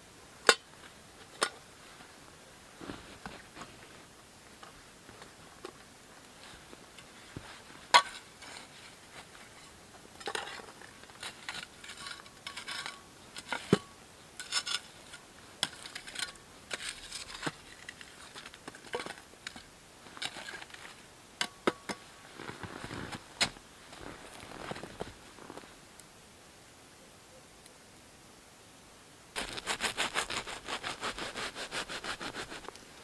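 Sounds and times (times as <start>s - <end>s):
hand tool scraping ground: 6.3s - 25.7s, 29.4s - 32.8s.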